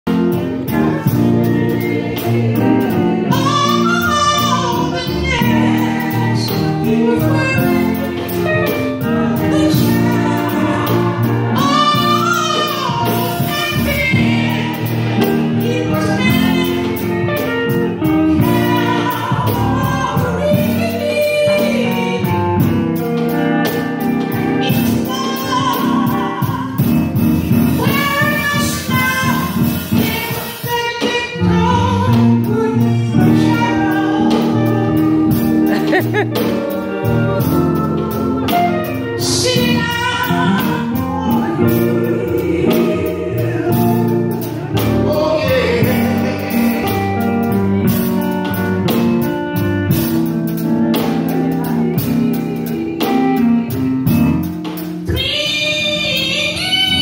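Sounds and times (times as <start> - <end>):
man singing gospel song: 0.1 - 22.3, 27.8 - 48.0
instrumental accompaniment with beat: 0.1 - 57.0.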